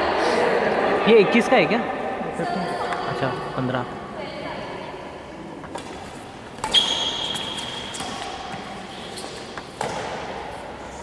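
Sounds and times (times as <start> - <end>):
racket hitting shuttlecock: 5.6 - 11.0.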